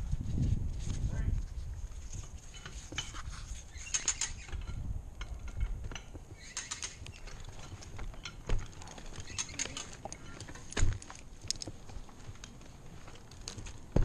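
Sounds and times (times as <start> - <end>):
carabiners jingling: 3.8 - 11.7.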